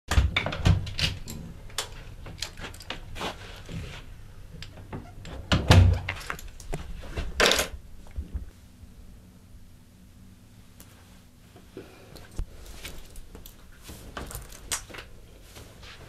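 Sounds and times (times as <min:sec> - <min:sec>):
door clicks and knocks: 0:00.1 - 0:01.2.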